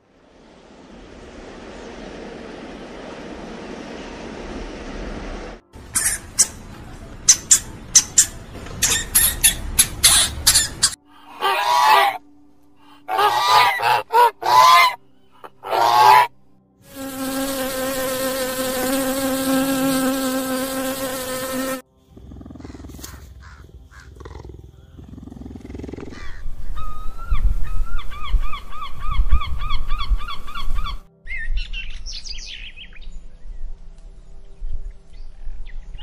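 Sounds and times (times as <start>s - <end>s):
insect buzz: 5.8s - 6.7s, 15.3s - 26.8s
rapid high chirps: 5.8s - 11.0s.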